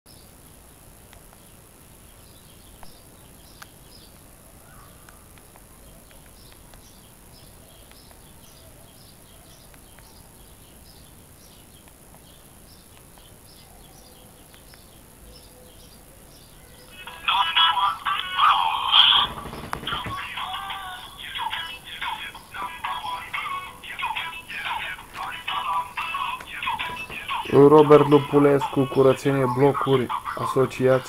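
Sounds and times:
cricket chirping: 0.1s - 31.0s.

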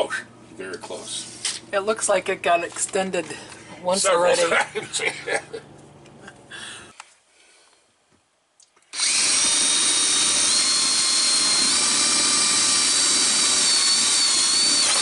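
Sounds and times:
cordless drill boring through wood: 8.9s - 15.0s.

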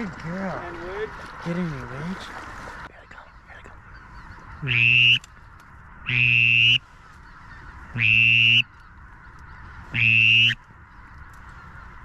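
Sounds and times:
nasal honking call: 4.6s - 5.2s, 6.0s - 6.8s, 8.0s - 8.7s, 9.9s - 10.6s.

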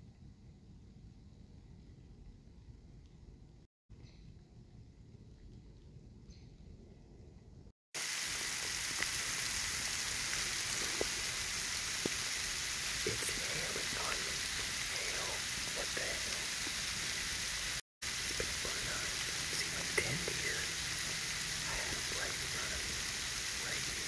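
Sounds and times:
steady hiss: 8.0s - 24.0s
man whispering: 13.1s - 16.7s, 18.3s - 20.8s, 21.6s - 24.0s.

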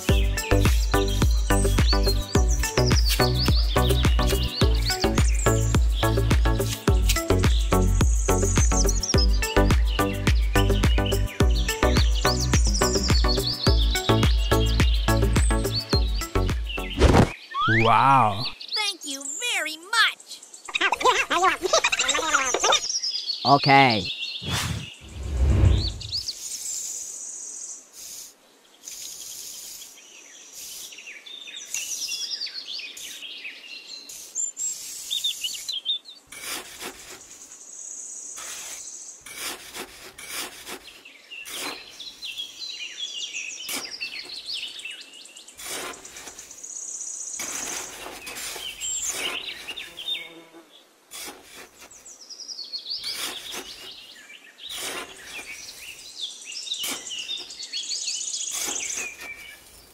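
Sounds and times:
birds chirping: 0.0s - 59.9s
insect buzzing: 25.8s - 32.2s, 34.0s - 42.4s, 45.6s - 52.1s
trowel scraping damp sand: 27.9s - 31.1s, 34.1s - 37.6s, 38.3s - 42.6s, 43.6s - 44.9s, 45.5s - 46.7s, 47.3s - 50.1s, 51.1s - 52.1s, 53.0s - 56.1s, 56.7s - 57.7s, 58.4s - 59.9s.

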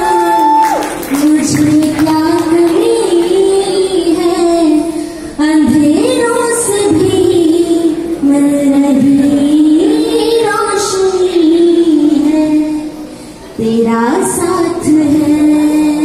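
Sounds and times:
woman singing into a microphone: 0.0s - 13.0s, 13.6s - 16.0s
short breath: 4.9s - 5.4s, 13.0s - 13.6s.

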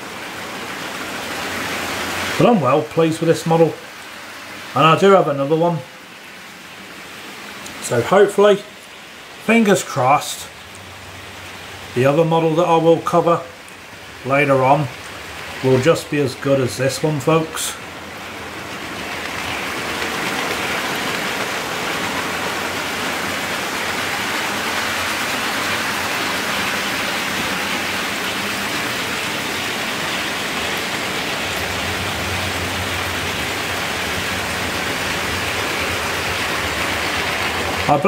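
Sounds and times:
model train wheels on rail: 18.5s - 25.1s.

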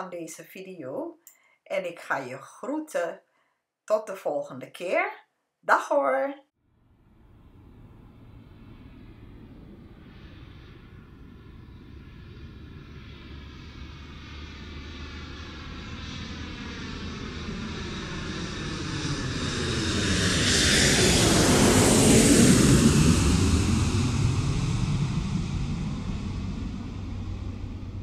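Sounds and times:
engine passing by: 7.0s - 28.0s.

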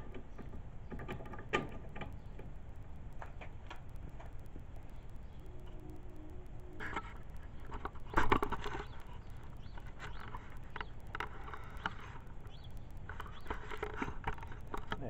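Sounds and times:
plastic rattle: 6.8s - 15.0s.

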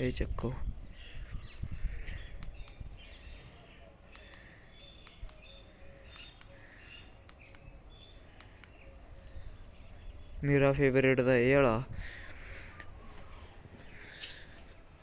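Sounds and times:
faint birds chirping: 0.0s - 15.0s
light clicks: 2.4s - 2.8s, 4.1s - 6.6s, 7.2s - 8.9s.

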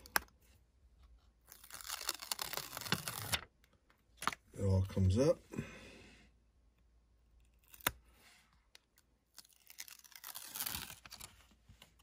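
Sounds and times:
tape backing crackling: 1.4s - 4.4s.

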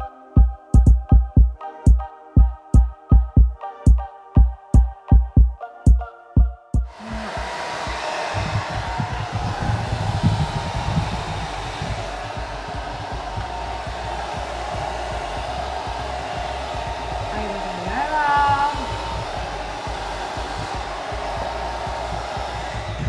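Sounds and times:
hair dryer running: 6.9s - 23.0s.

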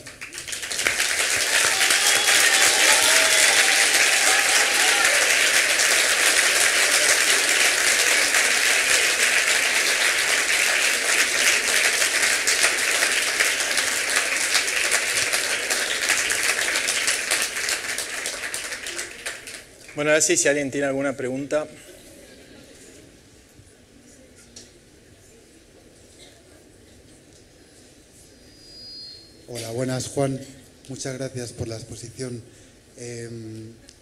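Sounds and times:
audience applauding: 0.0s - 20.2s.

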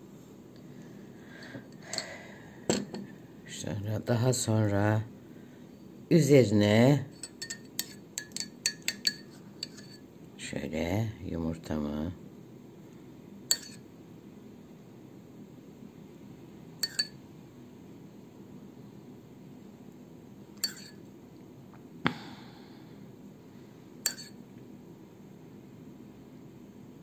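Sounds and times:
metal spoon clinking against bowl: 7.1s - 10.0s, 13.5s - 13.8s, 16.8s - 17.2s, 20.6s - 21.0s, 24.0s - 24.4s.

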